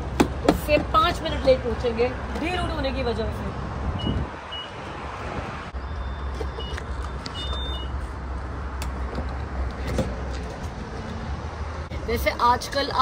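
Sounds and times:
longer beep tones: 4.0 - 4.8, 5.8 - 7.9.

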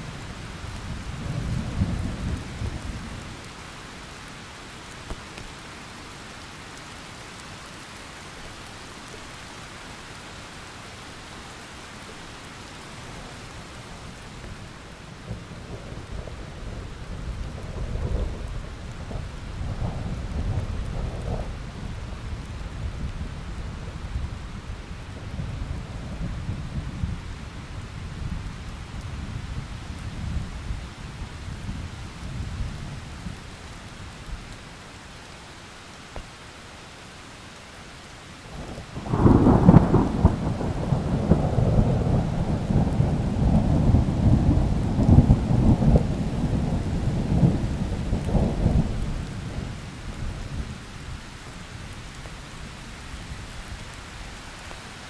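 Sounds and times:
steady rain: 0.0 - 55.0
thunder cracking and rumbling: 38.7 - 50.6.

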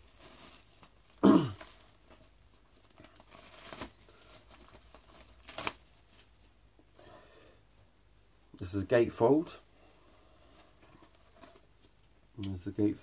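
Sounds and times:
plastic shrink wrap tearing: 0.0 - 6.5.

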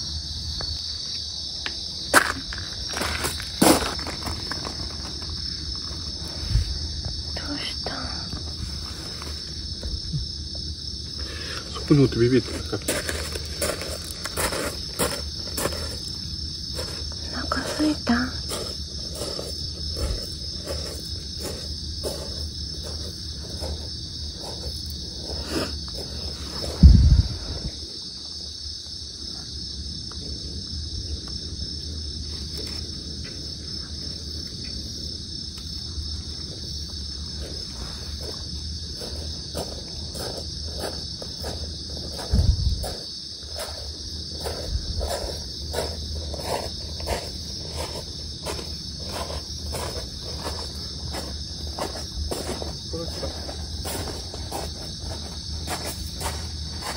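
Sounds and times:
night insects chirring: 0.0 - 56.9
low thumps: 26.7 - 27.8.

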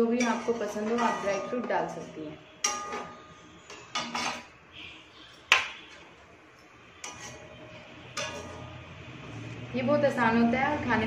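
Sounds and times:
metal spoon clinking on pan: 0.0 - 4.5, 7.0 - 7.5, 8.1 - 8.8.

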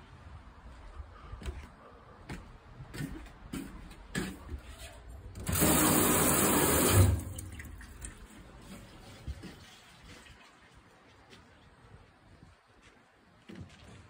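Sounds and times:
water rushing into metal sink: 5.4 - 8.1.

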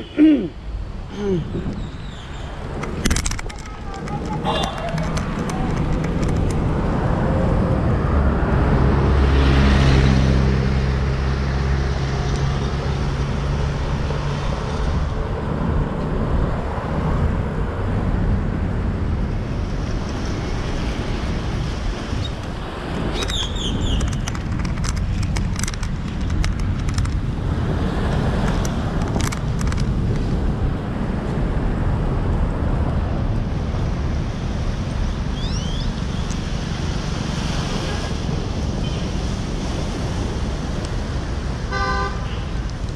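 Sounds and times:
road traffic: 0.0 - 42.9
wind: 0.0 - 42.9
vehicle engine passing: 4.2 - 15.0.

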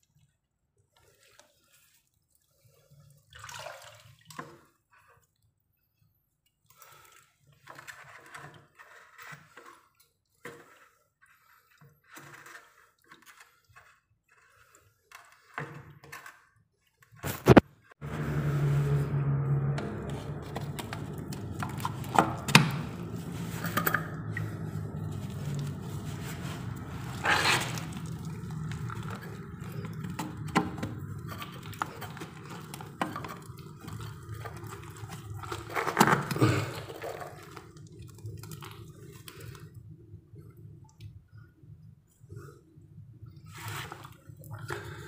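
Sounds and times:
low steady hum: 18.0 - 42.1.

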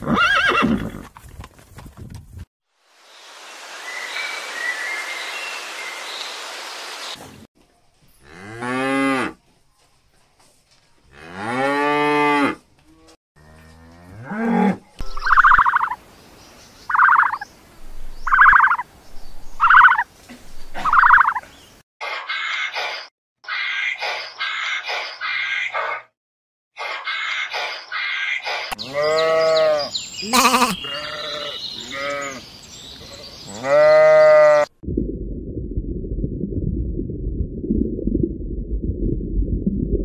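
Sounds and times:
short high animal calls: 28.8 - 32.4.

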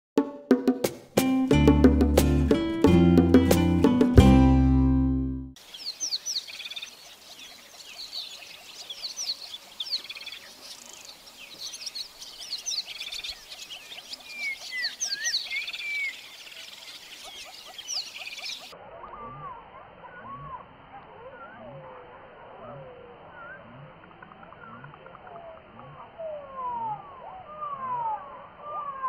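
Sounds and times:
birds chirping and whistling: 5.7 - 29.0
low gliding bird calls: 5.9 - 29.0.

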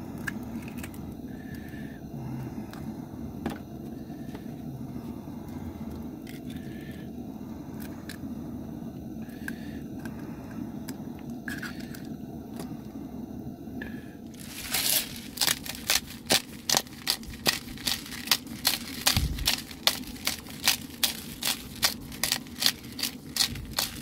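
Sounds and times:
low gas burner rumble: 0.0 - 24.0
eggs frying in butter: 14.4 - 24.0.

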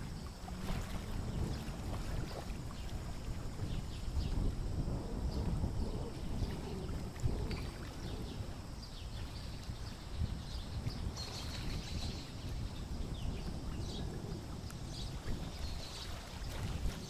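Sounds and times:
low rumble of wind and water: 0.0 - 17.0.

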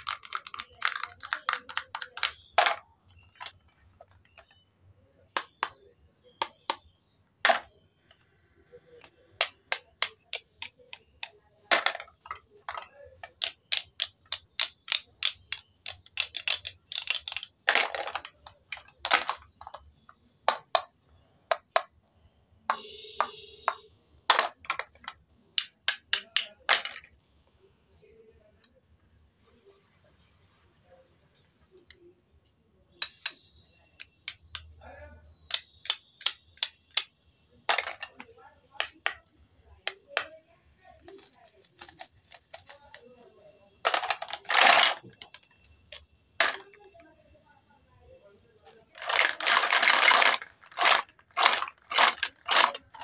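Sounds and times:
plastic scraping crackles: 0.0 - 4.6, 43.8 - 47.1, 48.7 - 53.0.

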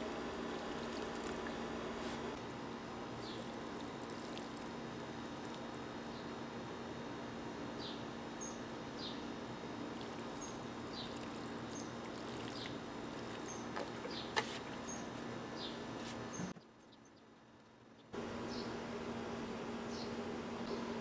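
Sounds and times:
water pouring from watering can: 0.6 - 1.6, 3.5 - 5.7, 9.9 - 14.0.

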